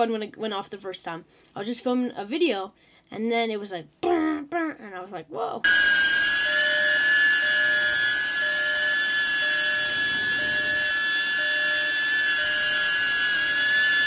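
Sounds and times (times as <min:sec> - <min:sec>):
drone propellers whining: 0:05.7 - 0:14.0.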